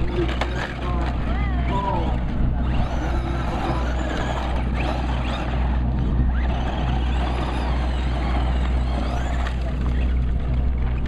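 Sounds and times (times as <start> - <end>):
low rumble: 0.0 - 11.0
toy truck wheels spinning on dirt: 0.0 - 11.0.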